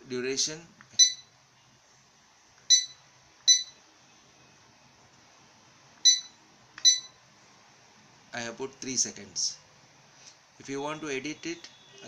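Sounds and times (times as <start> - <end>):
short high-pitched beeps: 1.0 - 1.3, 2.7 - 3.8, 6.0 - 7.2.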